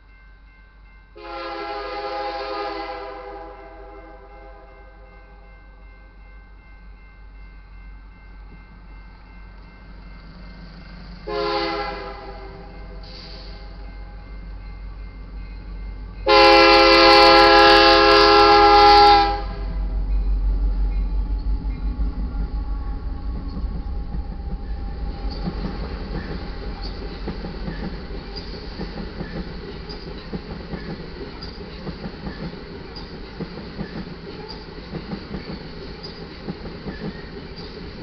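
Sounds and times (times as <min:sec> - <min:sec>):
locomotive air horn blast: 0:01.2 - 0:04.7, 0:11.2 - 0:13.8, 0:16.2 - 0:19.9
diesel locomotive engine rumble: 0:06.2 - 0:38.0
train wheels clickety-clack: 0:21.0 - 0:38.0.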